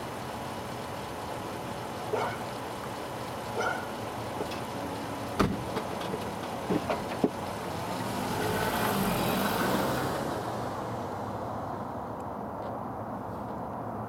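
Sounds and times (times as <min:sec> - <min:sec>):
car driving past with brakes on: 0:07.7 - 0:11.4.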